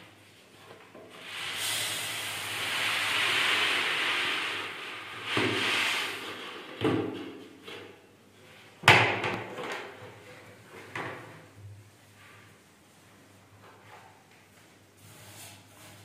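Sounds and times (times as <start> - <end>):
grain pouring into basin: 1.2 - 6.8
plastic bucket knocks: 6.8 - 7.4.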